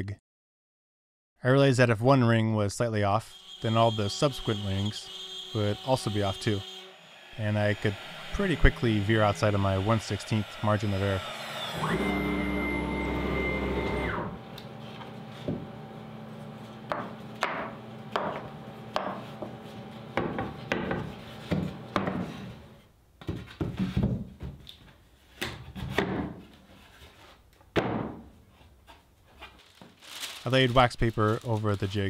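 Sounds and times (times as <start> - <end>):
cnc router running: 3.3 - 17.0.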